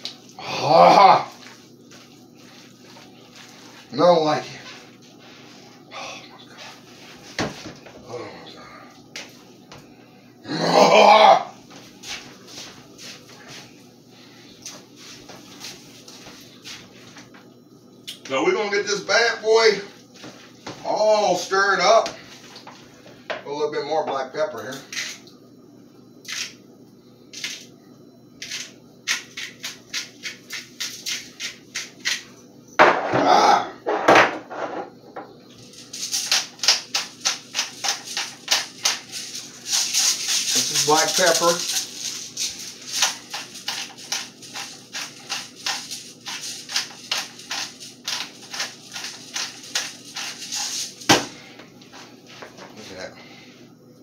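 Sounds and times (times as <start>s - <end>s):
pepper shaker shaking: 1.3s - 4.0s, 28.4s - 32.3s, 35.7s - 51.1s.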